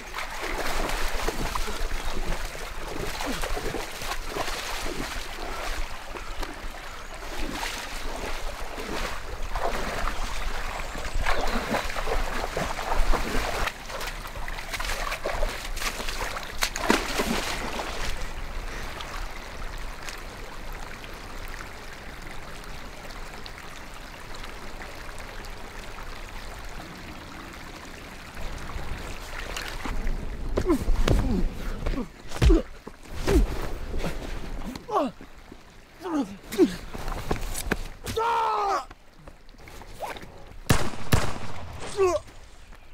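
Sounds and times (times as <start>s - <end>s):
small stream trickling: 0.0s - 42.9s.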